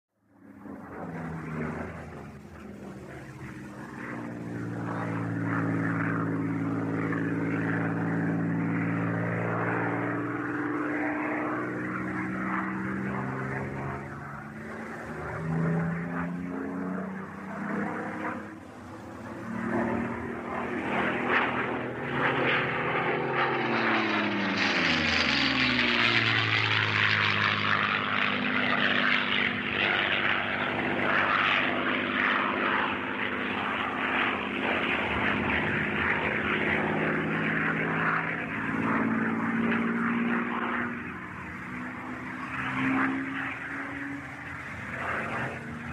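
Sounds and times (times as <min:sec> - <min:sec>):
propeller plane droning past: 0:00.2 - 0:45.9.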